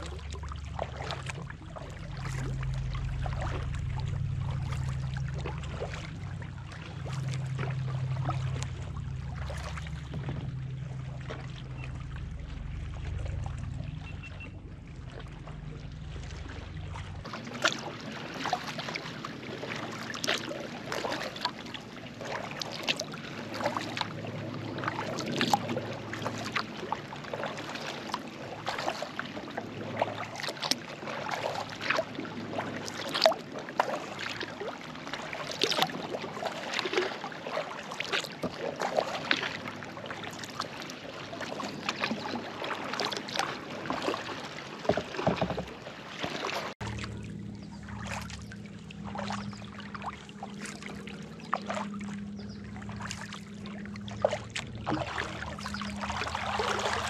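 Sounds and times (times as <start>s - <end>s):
paddle splashing into water: 16.1s - 24.1s, 24.8s - 47.1s, 54.2s - 57.0s.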